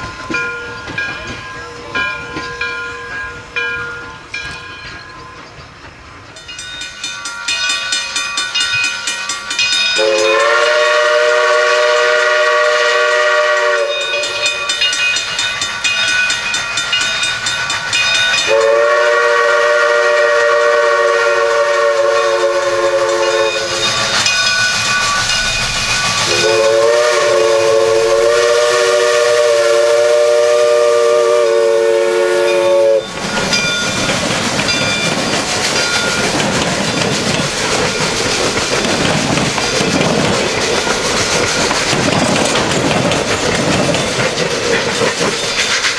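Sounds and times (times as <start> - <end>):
rhythmic steam engine chuffing: 0.0 - 45.9
rush of steam and running gear: 0.0 - 45.9
steam locomotive whistle chord: 9.8 - 15.3, 18.2 - 33.7.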